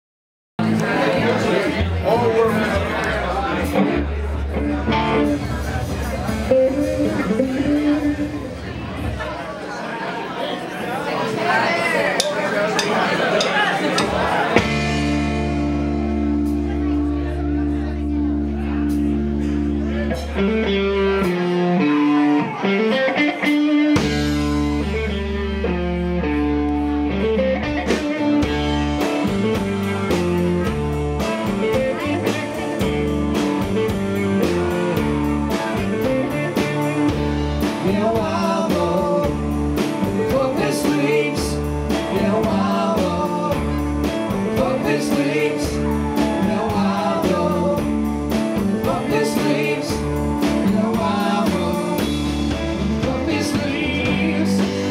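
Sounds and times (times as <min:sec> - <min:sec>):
electric bass: 0:00.6 - 0:09.4, 0:14.0 - 0:54.9
electric guitars: 0:00.6 - 0:09.4, 0:14.0 - 0:54.9
drum kit: 0:00.6 - 0:09.5, 0:12.2 - 0:54.9
man singing: 0:35.5 - 0:54.9.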